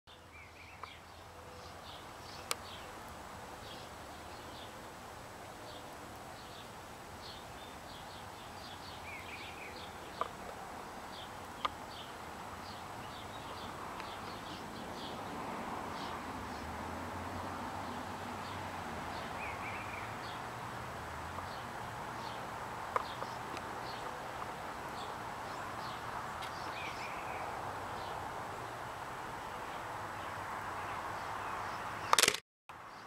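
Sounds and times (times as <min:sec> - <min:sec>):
small birds chirping: 0:00.1 - 0:04.8, 0:05.4 - 0:16.8, 0:17.4 - 0:33.0
sharp clicks: 0:32.1 - 0:32.4.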